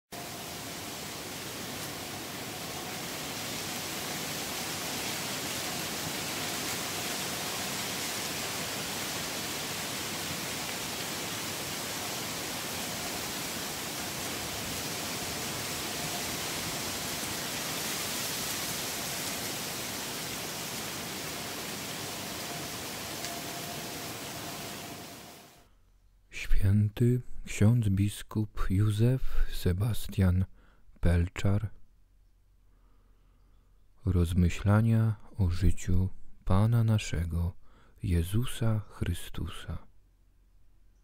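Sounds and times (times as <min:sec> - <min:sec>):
steady rushing hiss: 0:00.1 - 0:25.6.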